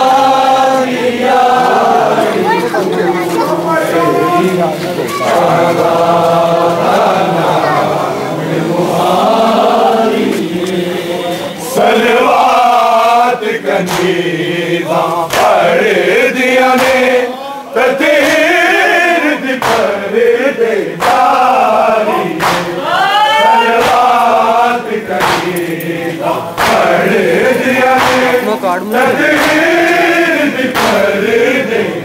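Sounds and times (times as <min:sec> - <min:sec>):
men chanting a lament in unison: 0:00.0 - 0:32.0
sharp knocks: 0:19.6 - 0:20.0, 0:21.0 - 0:21.4, 0:22.4 - 0:22.8, 0:25.2 - 0:25.7, 0:26.6 - 0:26.9, 0:27.8 - 0:28.4.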